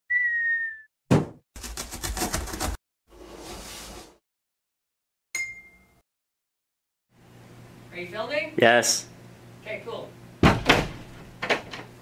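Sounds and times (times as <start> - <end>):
falling whistle tone: 0.1 - 0.9
thump: 1.1 - 1.4, 10.4 - 11.0.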